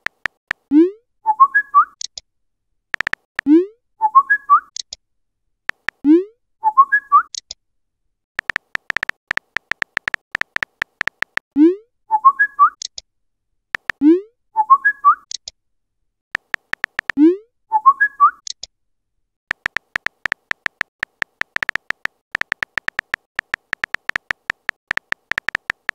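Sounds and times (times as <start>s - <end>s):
rapid keyboard tap clicks: 0.0s - 0.4s, 3.0s - 3.4s, 5.7s - 6.0s, 8.4s - 11.4s, 13.8s - 14.0s, 16.4s - 17.2s, 19.5s - 25.9s.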